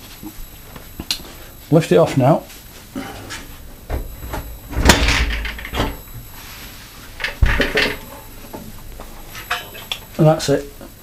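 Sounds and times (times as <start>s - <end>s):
radiator clunking against brackets: 3.8s - 6.1s.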